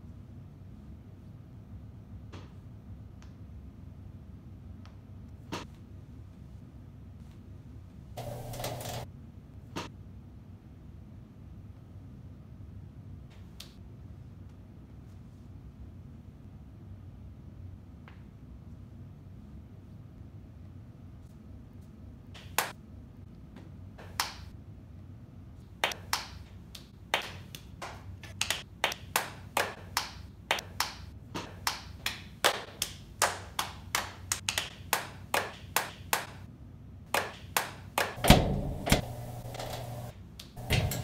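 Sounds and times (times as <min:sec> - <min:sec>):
hands clapping: 0:22.4 - 0:22.7, 0:24.0 - 0:24.5, 0:25.8 - 0:36.4, 0:37.1 - 0:38.2
thump and rumble: 0:38.2 - 0:41.0.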